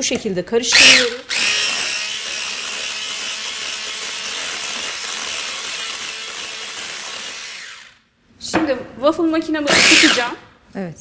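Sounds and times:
electric hand mixer whisking: 0.8s - 8.0s, 9.7s - 10.4s.

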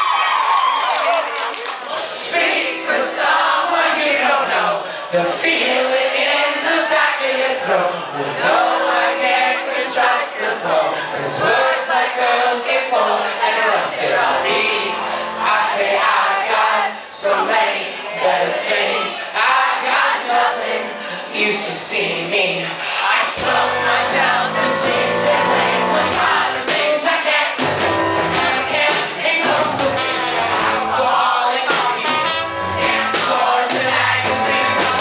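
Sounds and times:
live rock band: 23.4s - 35.0s.

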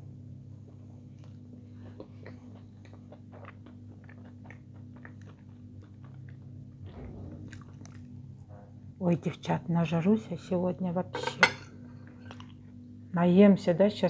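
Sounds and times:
steady low hum: 0.0s - 14.0s
person chewing soft food: 0.4s - 8.6s.

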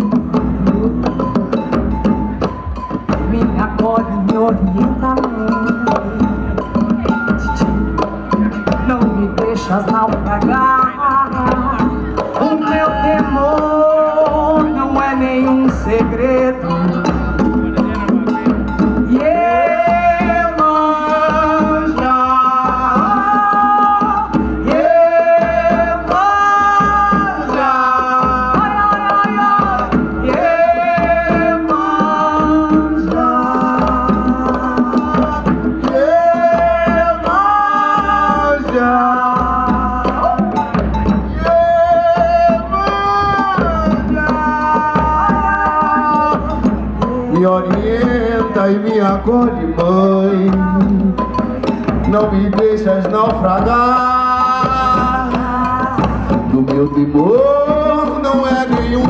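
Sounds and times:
congas: 0.0s - 59.0s
person singing long notes: 8.8s - 17.2s, 19.0s - 51.3s.

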